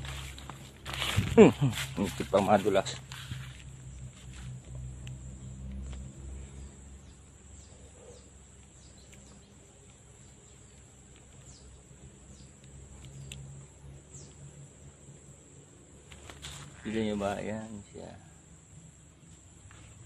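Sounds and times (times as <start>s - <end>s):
bird chirps: 6.3s - 14.5s.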